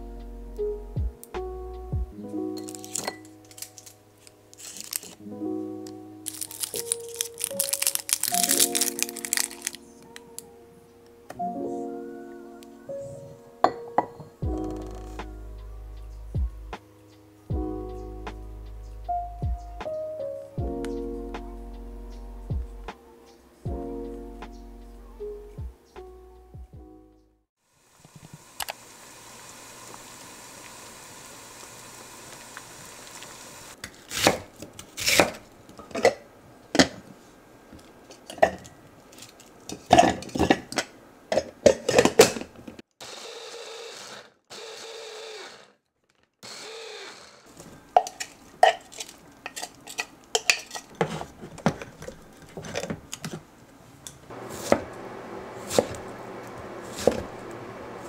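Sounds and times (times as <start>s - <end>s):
water boiling in a saucepan: 27.7s - 33.8s
electric mini chopper whirring: 46.4s - 47.4s
knife cutting on wooden board: 55.6s - 56.0s, 56.9s - 57.3s.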